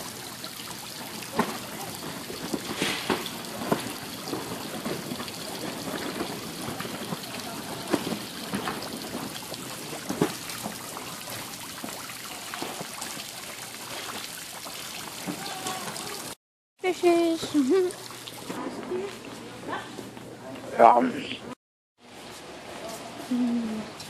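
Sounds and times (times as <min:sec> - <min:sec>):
water splashes: 0:00.0 - 0:16.4, 0:17.0 - 0:19.5
water trickling into a pond: 0:00.0 - 0:19.4.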